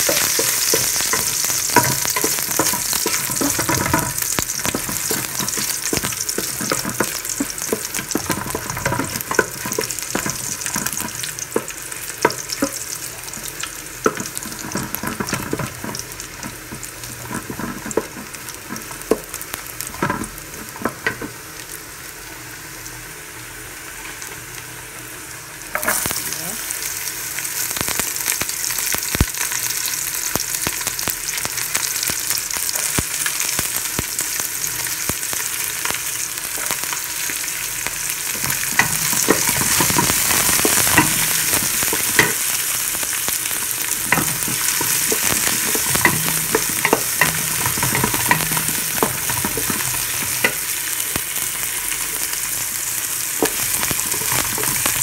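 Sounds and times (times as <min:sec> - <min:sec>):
spatula scraping and tapping pot: 0:00.0 - 0:21.4, 0:38.3 - 0:51.2, 0:53.4 - 0:55.0
garlic sizzling in hot oil: 0:00.0 - 0:55.0.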